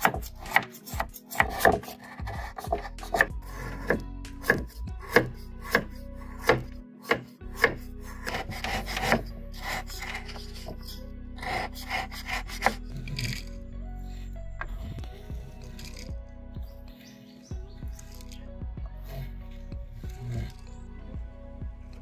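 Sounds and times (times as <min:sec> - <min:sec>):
knife scraping through sugar: 0:00.0 - 0:13.6, 0:15.4 - 0:16.2.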